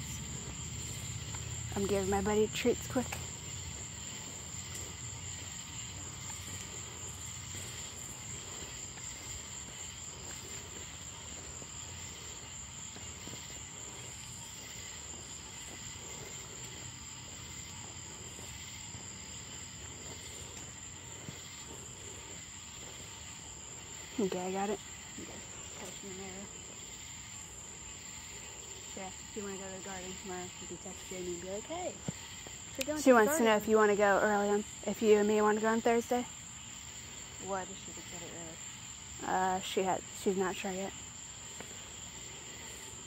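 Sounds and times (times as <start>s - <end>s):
crickets trilling: 0.0s - 43.0s
faint insect buzzing: 0.0s - 43.0s.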